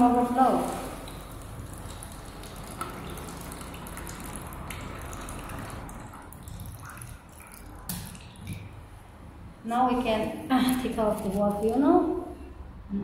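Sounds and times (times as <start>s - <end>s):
water trickling into paper cup: 0.0s - 9.0s.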